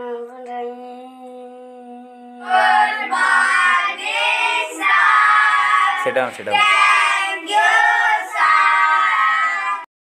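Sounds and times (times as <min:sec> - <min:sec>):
boys chanting in unison: 0:02.3 - 0:09.9.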